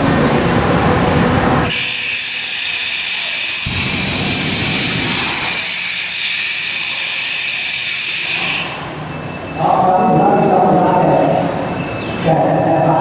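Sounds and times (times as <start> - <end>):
fire extinguisher hissing: 1.6 - 8.9.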